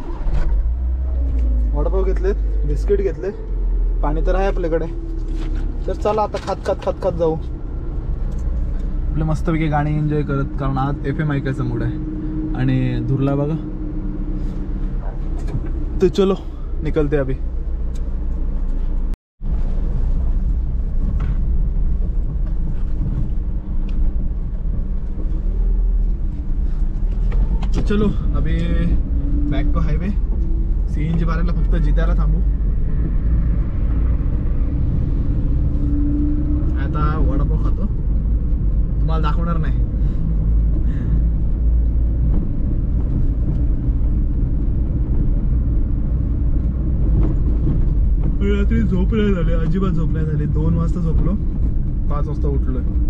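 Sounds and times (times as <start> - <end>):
road rumble: 0.0 - 53.0
van engine running: 0.0 - 53.0.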